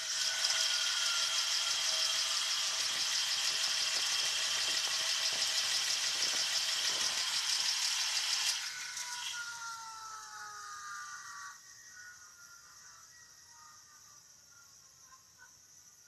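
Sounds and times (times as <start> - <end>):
machinery rattling with hiss and whine: 0.0 - 10.4.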